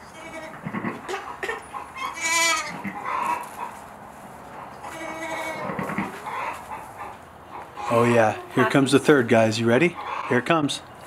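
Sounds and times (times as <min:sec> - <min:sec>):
sheep bleating: 0:00.1 - 0:00.6, 0:02.0 - 0:02.8, 0:04.9 - 0:06.1
soft lamb calls: 0:04.8 - 0:06.6.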